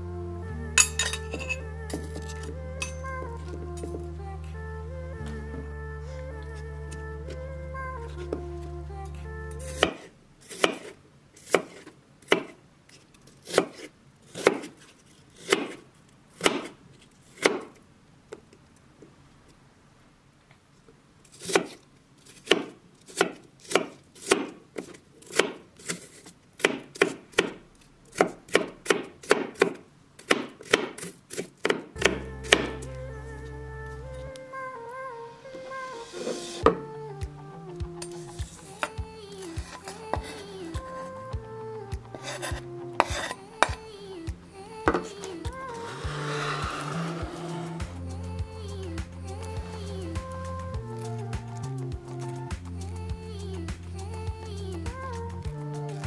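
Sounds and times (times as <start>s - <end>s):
knife chopping on wooden board: 9.8s - 10.9s.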